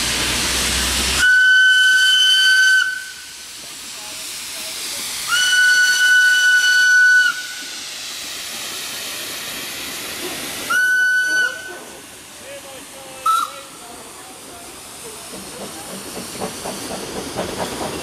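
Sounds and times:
steam hissing: 0.0 - 18.0
train passing: 0.0 - 18.0
steam locomotive whistle: 1.2 - 3.3, 5.3 - 7.6, 10.7 - 11.7.

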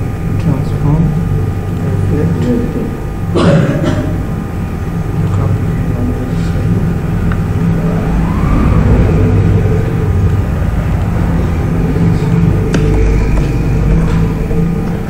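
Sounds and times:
rising whine: 0.0 - 15.0
low rumble: 4.1 - 15.0.

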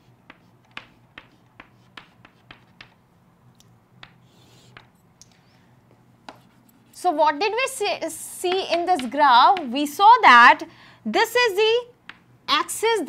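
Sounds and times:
chalk tapping and scraping: 0.0 - 3.1, 4.0 - 5.0, 5.9 - 7.0, 8.3 - 9.9.

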